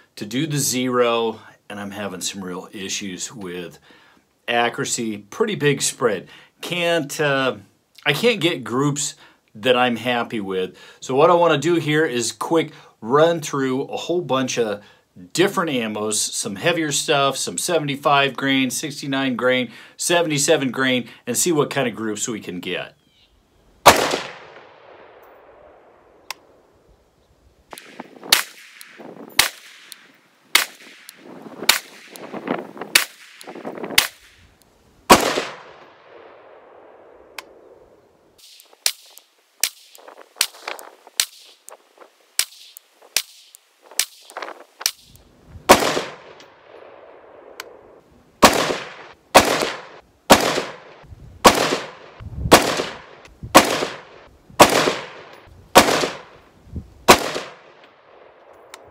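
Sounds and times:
rifle shots echoing: 0:23.8 - 0:26.1, 0:27.7 - 0:32.3, 0:32.9 - 0:34.3, 0:35.1 - 0:37.6, 0:45.7 - 0:56.4, 0:57.1 - 0:58.9.

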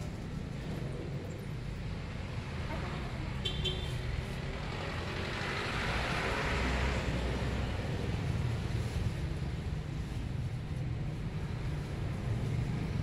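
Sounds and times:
traffic rumble: 0:00.0 - 0:13.0
vehicle passing by: 0:04.1 - 0:09.1.

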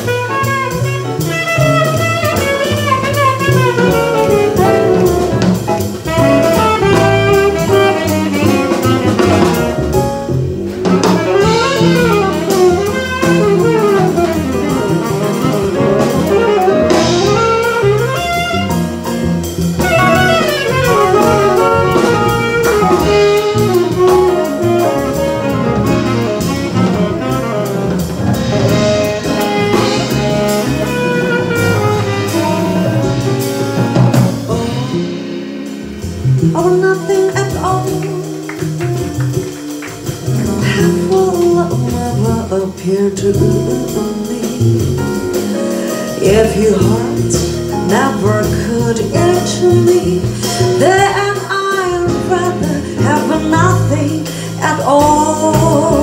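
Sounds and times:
saxophone solo: 0:00.0 - 0:36.0, 0:36.8 - 0:41.4
drum kit: 0:00.0 - 0:56.0
upright double bass walking: 0:00.0 - 0:56.0.

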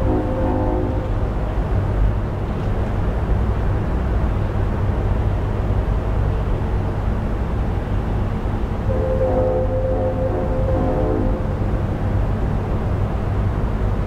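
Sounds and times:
distant train horn blasts: 0:00.0 - 0:01.4, 0:08.8 - 0:12.3.

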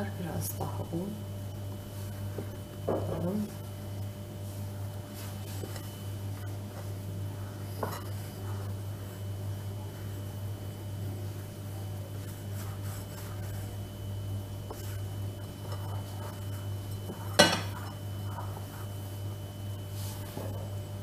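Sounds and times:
hands kneading dough: 0:01.6 - 0:21.0
utensil clinking against dish: 0:17.0 - 0:18.0.

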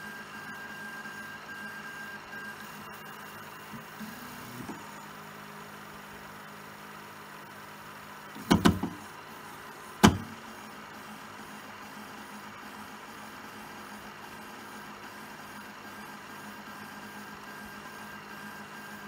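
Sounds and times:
printer mechanism humming: 0:03.5 - 0:05.2, 0:08.2 - 0:11.6
loud knocks: 0:10.0 - 0:10.4.

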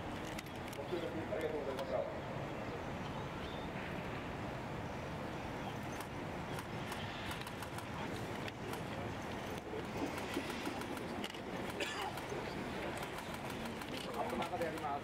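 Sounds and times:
outdoor background hush: 0:00.0 - 0:15.0.

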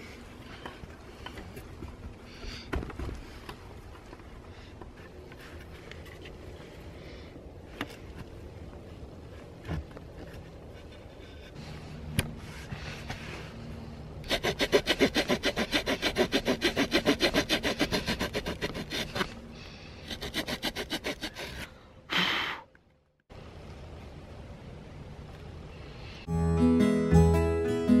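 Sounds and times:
small saw cutting wood: 0:14.2 - 0:19.4, 0:20.0 - 0:21.7.

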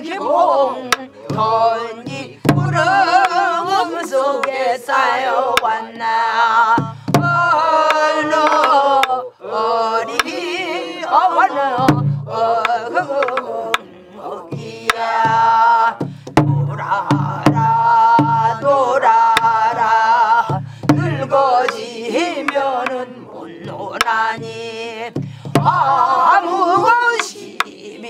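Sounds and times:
woman singing folk song with vibrato: 0:00.0 - 0:28.0
barrel drum strokes: 0:01.3 - 0:03.5, 0:11.8 - 0:13.5, 0:14.5 - 0:21.8, 0:23.6 - 0:26.9.

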